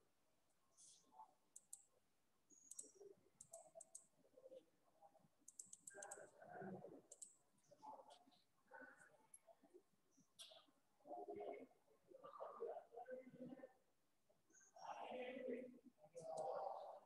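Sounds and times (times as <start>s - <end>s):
faint clicking: 5.4s - 6.3s.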